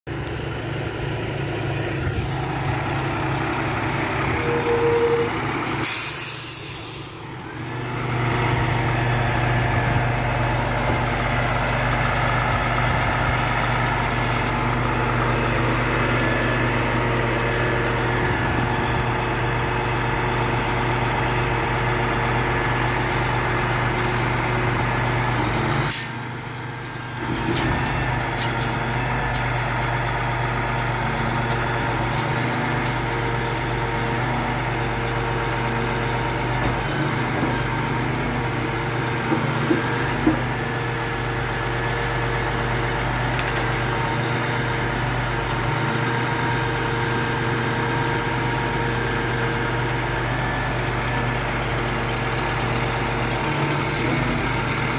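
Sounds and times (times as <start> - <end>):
diesel truck engine running: 0.1 - 54.9
air brake hiss: 5.7 - 7.2, 25.9 - 26.2.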